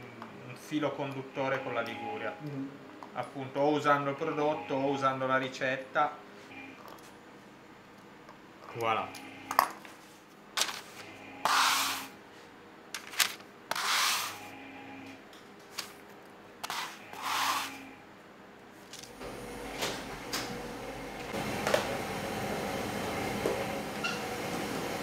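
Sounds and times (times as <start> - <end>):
kitchen hum: 8.2 - 14.8, 15.5 - 25.0
paper rustle: 10.6 - 11.1.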